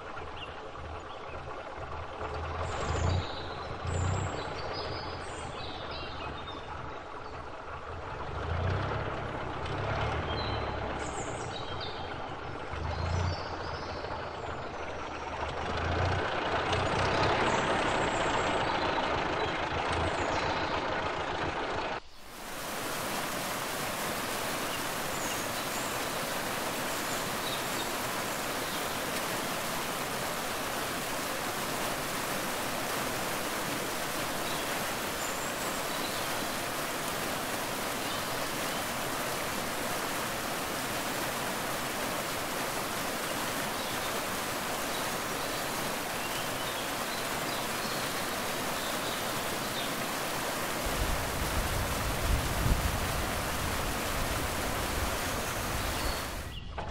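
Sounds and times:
waterfall rushing: 22.2s - 56.6s.

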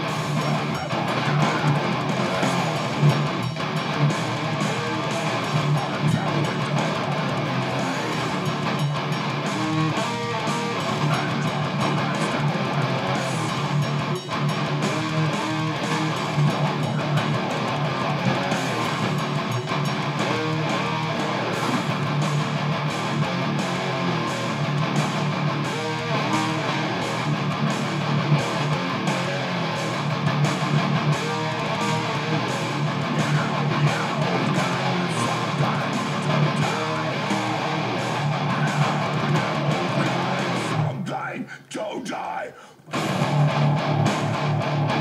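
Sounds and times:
electric guitar playing: 0.0s - 41.3s, 42.8s - 45.0s.

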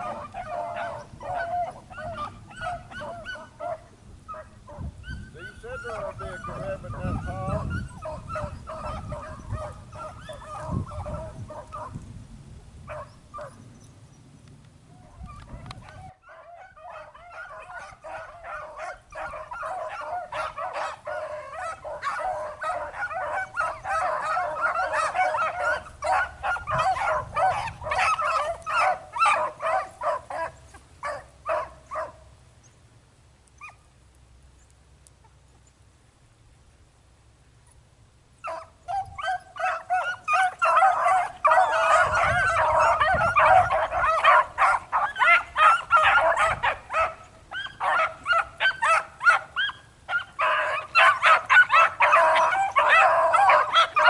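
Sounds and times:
hounds baying: 0.0s - 12.0s, 12.9s - 13.8s, 15.0s - 32.8s, 38.4s - 54.0s
wind rumbling on microphone: 0.0s - 30.7s, 38.7s - 48.8s.

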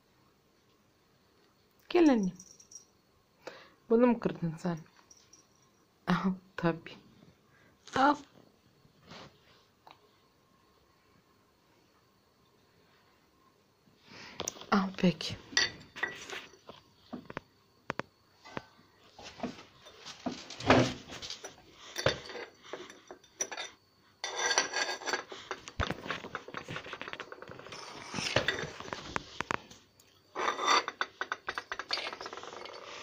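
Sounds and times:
ceramic pieces clinking on tiles: 21.4s - 28.9s, 30.4s - 33.0s.

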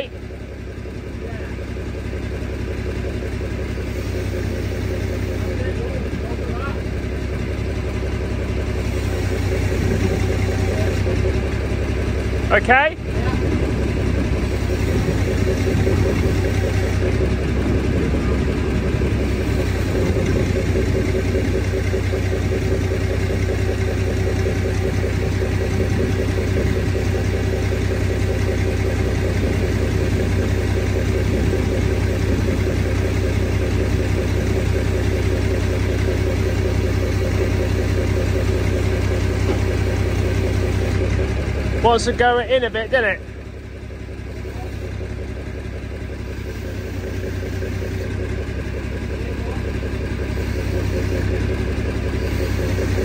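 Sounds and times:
diesel engine fast idle: 0.0s - 53.0s.

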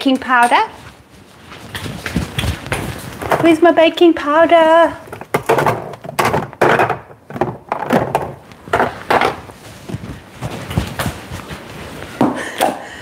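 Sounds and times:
containers clattering: 3.1s - 4.0s, 4.7s - 9.4s
wooden knocks: 5.0s - 9.4s.

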